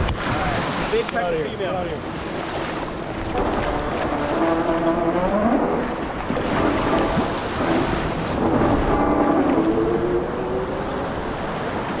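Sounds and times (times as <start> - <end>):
surf washing: 0.0 - 12.0
water splashing: 0.0 - 12.0
background music with held notes: 3.2 - 10.4.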